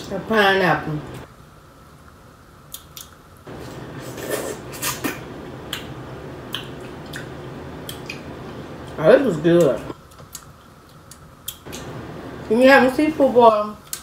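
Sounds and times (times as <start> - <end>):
steady low hum: 0.0 - 14.0
wet chewing and lip-smacking: 2.7 - 3.3, 5.6 - 9.0, 9.6 - 11.9.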